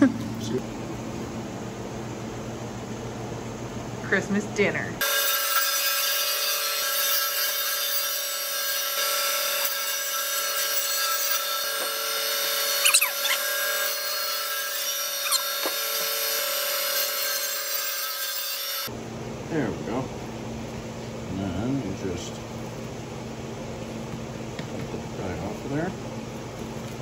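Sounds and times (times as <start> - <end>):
band saw cutting bone: 5.0 - 18.9
saw blade squeals: 12.6 - 15.8.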